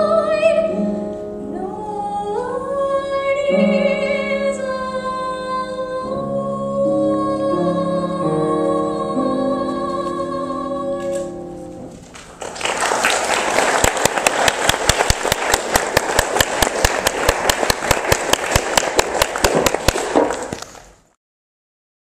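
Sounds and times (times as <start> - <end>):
audience applause: 12.4 - 20.7.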